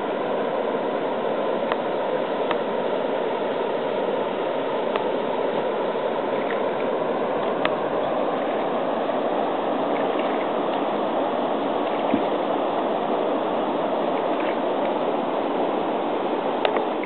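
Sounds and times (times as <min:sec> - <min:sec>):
flowing river water: 0:00.0 - 0:17.0.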